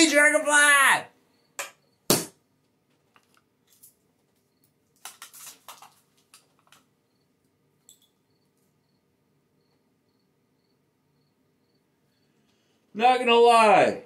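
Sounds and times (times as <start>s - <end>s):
plastic wrapper crinkling: 4.9s - 6.8s.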